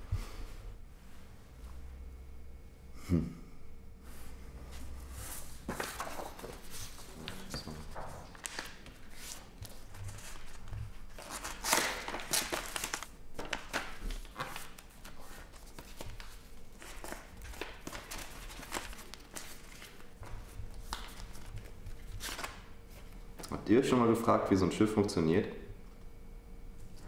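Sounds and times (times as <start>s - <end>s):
paper rustling and crinkling: 5.2s - 23.5s.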